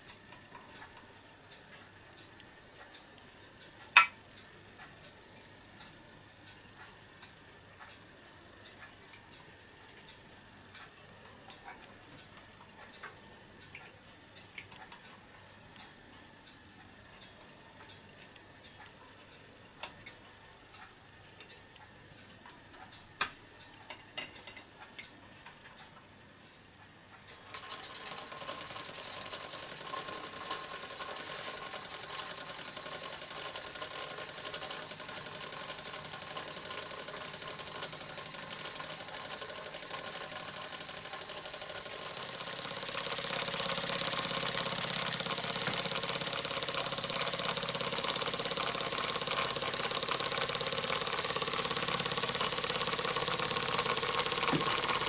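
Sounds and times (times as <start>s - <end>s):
faint ticks and clicks: 0.0s - 55.0s
steam engine mechanical beat: 27.6s - 55.0s.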